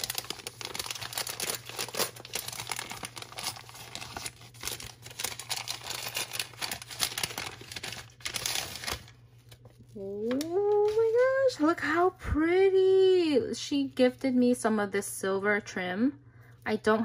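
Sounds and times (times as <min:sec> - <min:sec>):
paper wrapping crinkling: 0:00.0 - 0:11.6.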